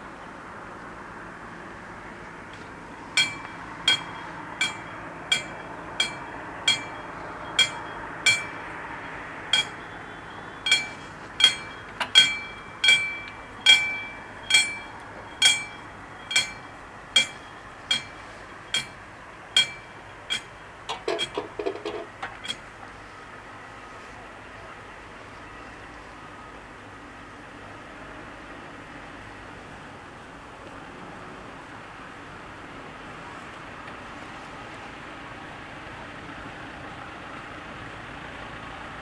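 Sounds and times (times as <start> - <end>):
level crossing bell ringing: 3.2 - 21.6.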